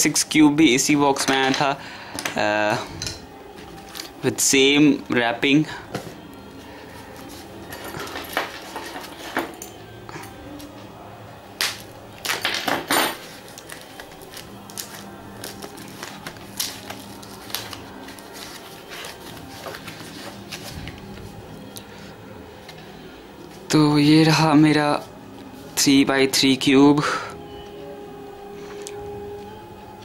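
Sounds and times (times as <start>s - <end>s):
paper crinkling and rustling: 3.6s - 4.2s, 13.2s - 21.5s.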